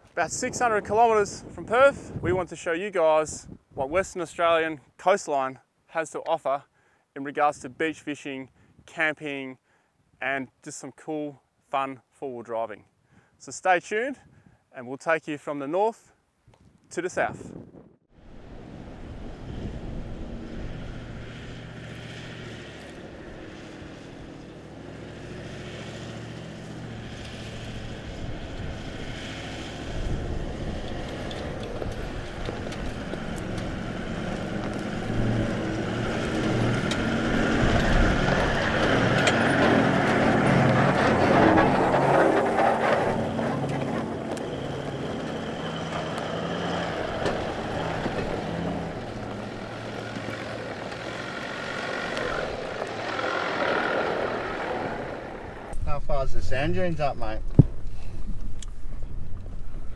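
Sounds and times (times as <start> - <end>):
vehicle engine running: 18.4 - 57.0.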